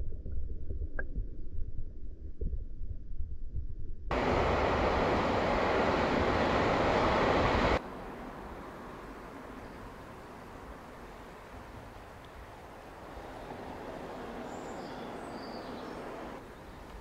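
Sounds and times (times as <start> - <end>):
underwater stream rumble: 0.0 - 17.0
loud steady hiss: 4.1 - 17.0
faint clicks: 12.2 - 12.5, 16.8 - 17.0.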